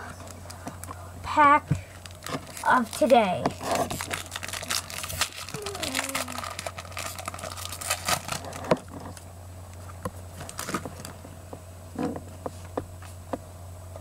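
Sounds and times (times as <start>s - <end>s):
steady low hum: 0.0s - 14.0s
foil wrapper crinkling and tearing: 1.9s - 9.2s, 10.4s - 11.2s.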